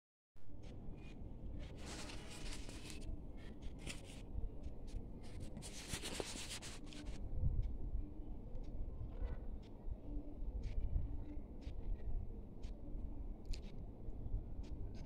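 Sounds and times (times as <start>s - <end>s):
newspaper rustling on microphone: 1.7s - 4.2s, 5.2s - 7.2s.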